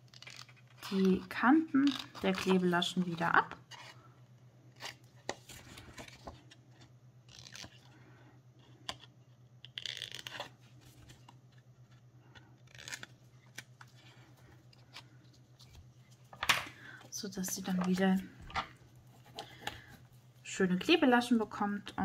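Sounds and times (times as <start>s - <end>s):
low steady hum: 0.0s - 22.0s
cardstock rustling and scraping: 4.8s - 7.9s.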